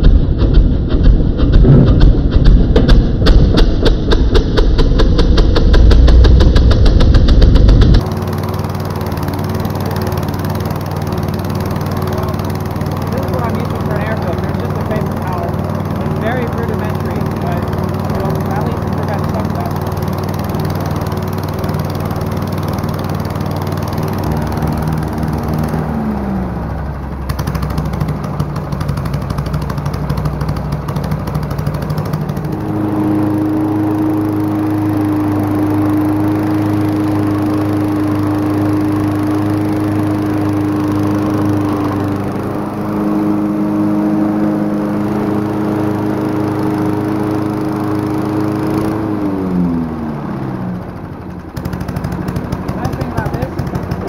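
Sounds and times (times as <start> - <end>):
higher steady engine note: 0.0 - 54.0
push mower engines running: 0.0 - 54.0.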